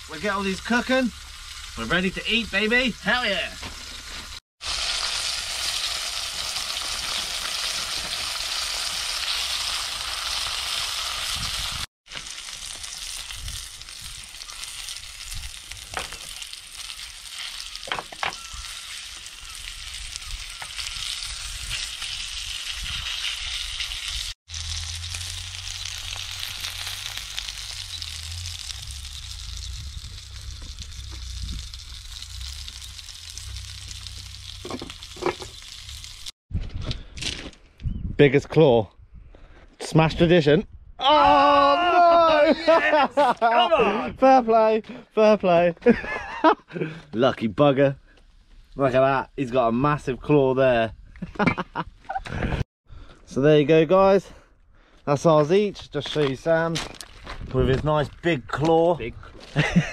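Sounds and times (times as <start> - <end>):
food sizzling in frying pan: 0.0 - 36.4
low rumble: 24.5 - 36.3.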